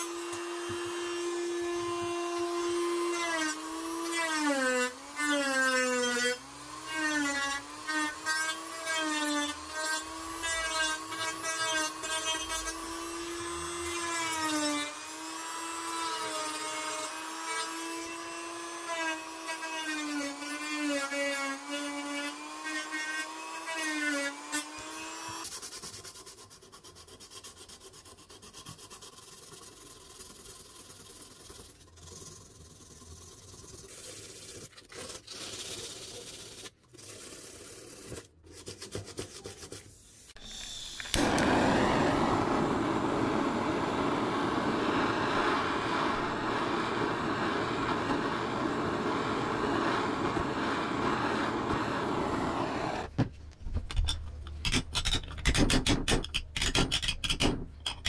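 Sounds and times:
small power tool whining: 0:00.0 - 0:25.5, 0:40.4 - 0:53.1
loud rushing hiss: 0:40.4 - 0:53.1.

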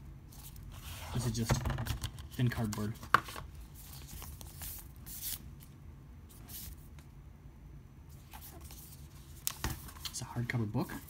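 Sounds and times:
cardboard and paper rustling: 0:00.3 - 0:05.4.

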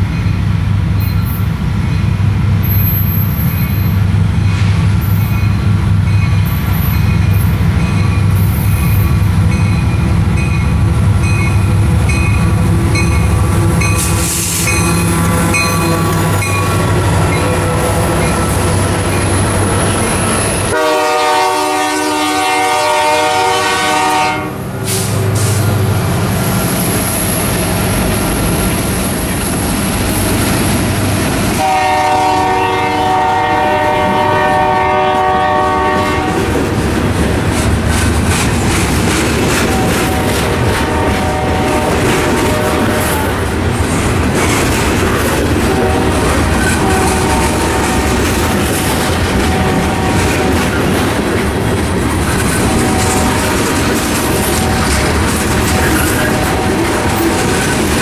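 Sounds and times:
wheels clacking over rail joints: 0:05.0 - 0:21.4, 0:35.8 - 0:58.0
train air horn blasts: 0:12.4 - 0:19.1, 0:20.2 - 0:25.7, 0:31.6 - 0:36.5, 0:39.7 - 0:43.4, 0:45.7 - 0:48.2, 0:48.8 - 0:50.7, 0:52.6 - 0:55.2, 0:55.8 - 0:57.2.

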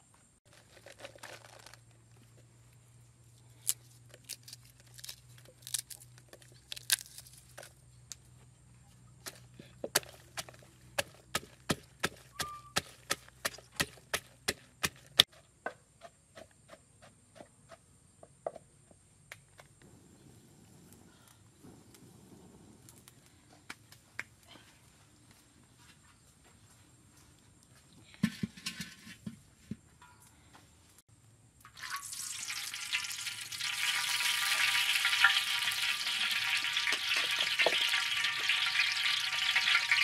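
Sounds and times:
wooden pestle pounding in mortar: 0:09.9 - 0:15.3.

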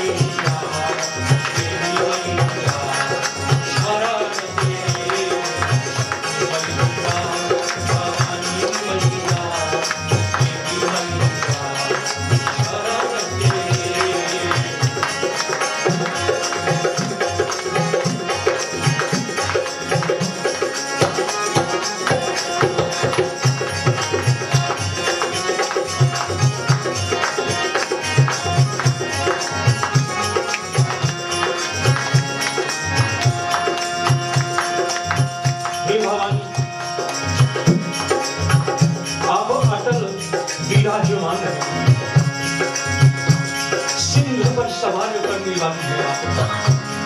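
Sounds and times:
person singing: 0:00.0 - 0:15.3
hand drums: 0:00.0 - 0:47.0
jingling percussion: 0:00.0 - 0:47.0.

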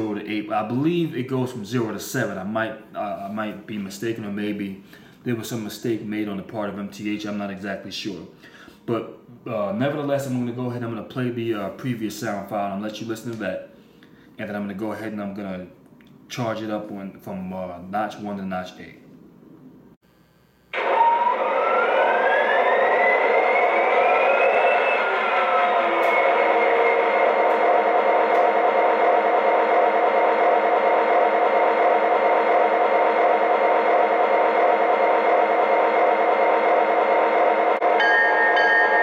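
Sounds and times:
diesel engine start-up through small speaker: 0:20.8 - 0:30.7.

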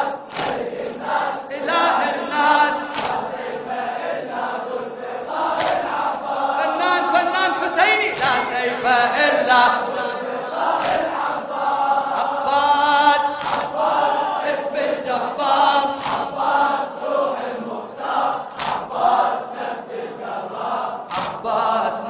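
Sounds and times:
man chanting into a microphone: 0:00.0 - 0:03.7, 0:05.7 - 0:17.0, 0:21.3 - 0:22.0
group of voices chanting: 0:00.0 - 0:22.0.

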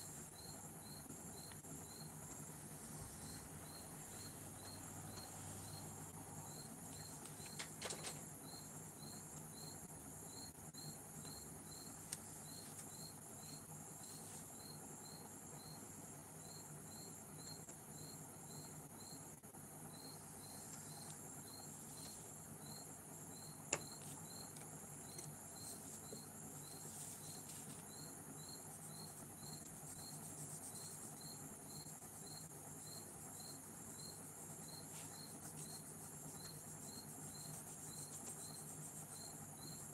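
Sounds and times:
crickets chirping: 0:00.0 - 0:39.9
high-pitched insect hiss: 0:19.9 - 0:39.9.

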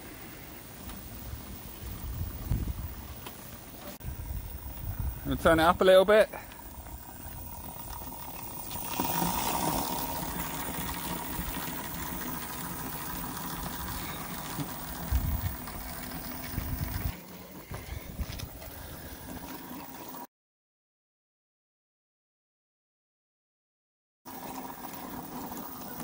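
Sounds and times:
electric motor whine: 0:06.5 - 0:11.7.

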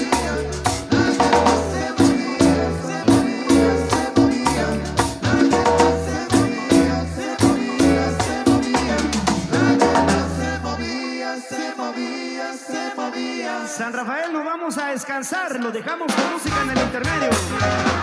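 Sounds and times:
shaker percussion: 0:00.0 - 0:10.6
marimba orchestra playing: 0:00.0 - 0:11.0
group singing: 0:00.0 - 0:14.4.

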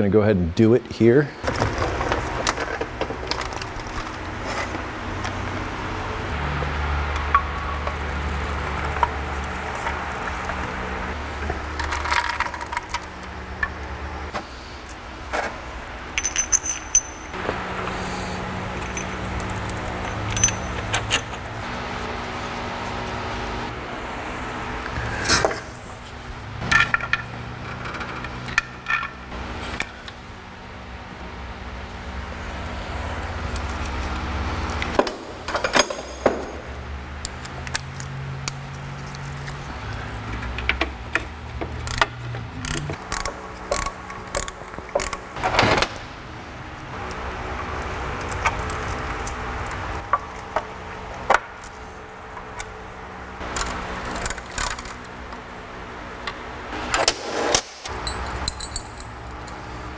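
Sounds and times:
metal chain parts clinking: 0:02.0 - 0:04.7, 0:11.4 - 0:13.3, 0:16.1 - 0:17.4, 0:18.0 - 0:21.6, 0:57.9 - 0:59.9.

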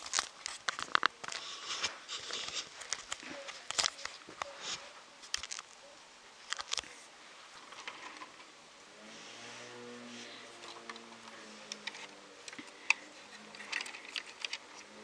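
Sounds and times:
plastic bricks clicking and rustling: 0:00.0 - 0:04.2, 0:05.3 - 0:05.8, 0:06.5 - 0:06.9, 0:11.7 - 0:14.9.

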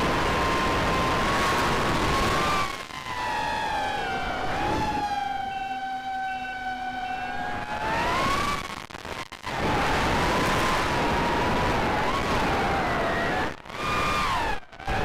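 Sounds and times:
drone motors whining: 0:02.4 - 0:08.6.

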